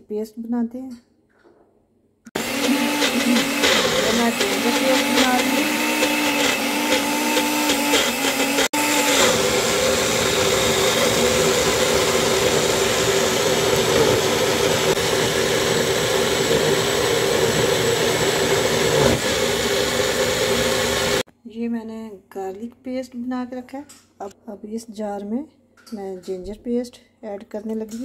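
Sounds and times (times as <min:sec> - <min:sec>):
blender motor whining: 0:02.4 - 0:21.3.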